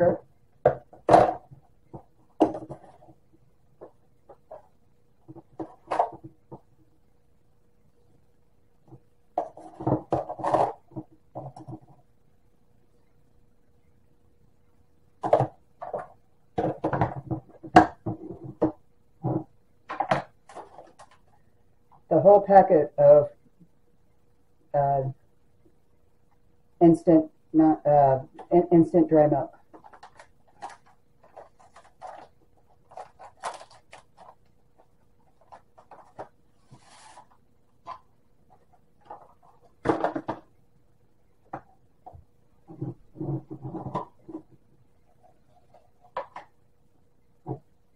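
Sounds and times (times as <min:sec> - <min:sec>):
plastic pouch crinkling: 0:29.8 - 0:34.4.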